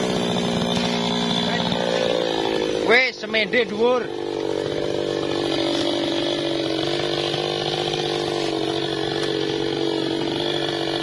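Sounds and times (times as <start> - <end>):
chainsaw idling: 0.0 - 11.0.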